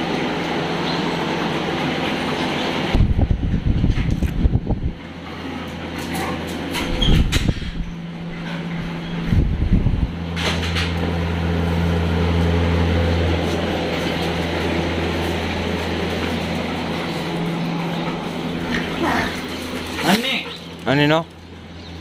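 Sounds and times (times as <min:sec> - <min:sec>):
electric fan whooshing: 0:00.0 - 0:22.0.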